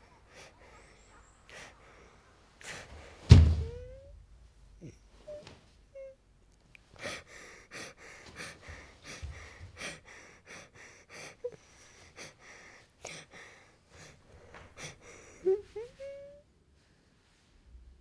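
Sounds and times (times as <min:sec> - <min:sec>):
person breathing hard: 0:00.0 - 0:03.2, 0:06.9 - 0:16.1.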